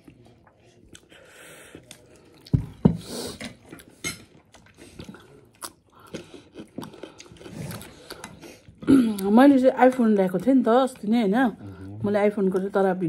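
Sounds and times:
wet chewing: 0.0 - 13.0.

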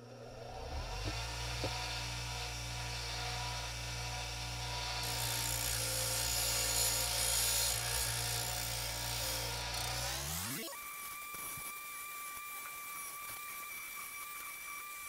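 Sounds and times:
bench grinder motor humming: 0.0 - 15.0.

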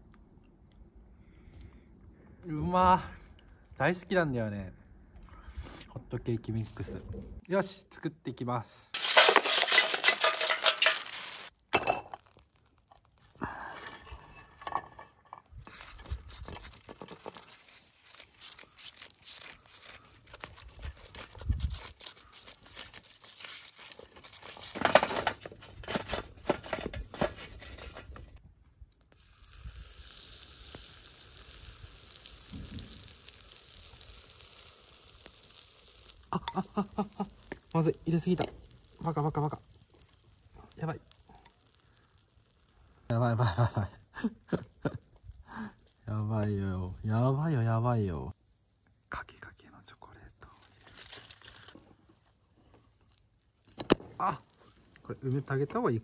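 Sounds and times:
batter sizzling on hot pan: 9.0 - 14.8, 15.7 - 25.3, 29.0 - 48.9, 50.4 - 56.0
butter scraping on grill pan: 29.1 - 45.4.

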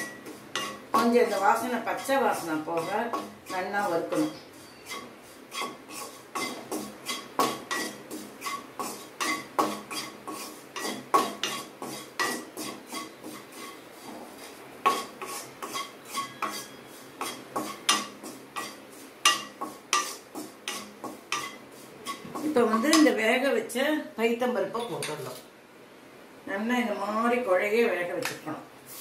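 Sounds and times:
wooden spatula scraping a wok: 0.0 - 23.2.

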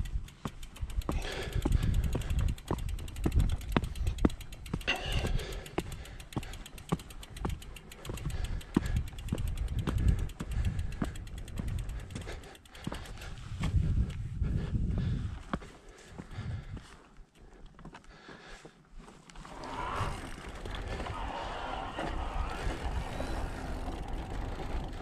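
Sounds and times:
wind rumble on microphone: 0.0 - 5.4, 8.3 - 12.4, 13.0 - 15.6, 16.3 - 16.9, 19.7 - 25.0
bike clicks and rattles: 0.0 - 25.0.

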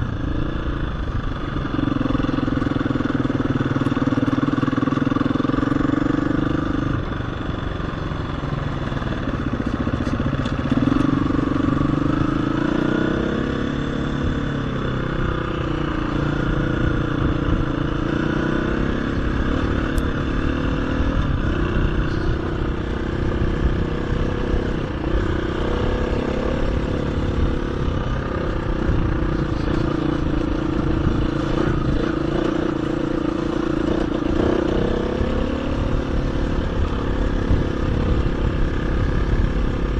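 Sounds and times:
dirt bike engine revving: 9.0 - 39.9.

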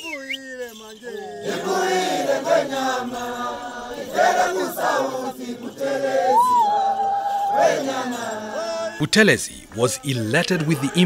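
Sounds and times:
group chanting: 0.8 - 9.0.

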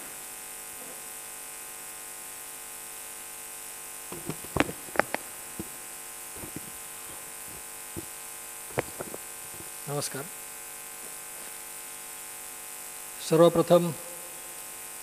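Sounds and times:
electrical hum and hiss: 0.0 - 15.0
microphone handling knocks: 4.1 - 9.8.

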